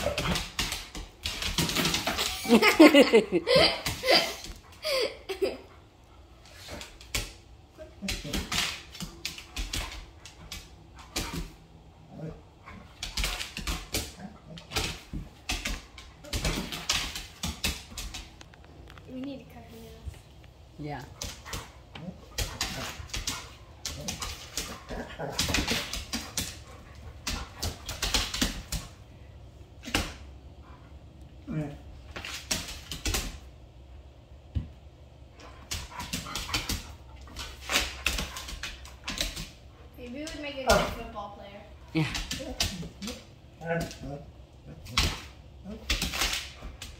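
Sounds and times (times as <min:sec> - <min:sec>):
dog claws clicking on wooden floor: 0:08.1 - 0:11.6, 0:12.6 - 0:19.3, 0:21.1 - 0:29.0, 0:32.1 - 0:33.5, 0:35.4 - 0:41.0, 0:44.9 - 0:46.9.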